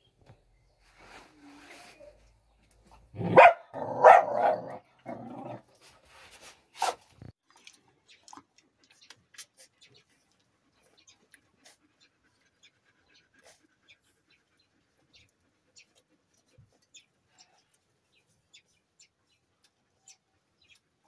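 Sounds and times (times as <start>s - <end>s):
dog barking: 3.2s - 4.8s.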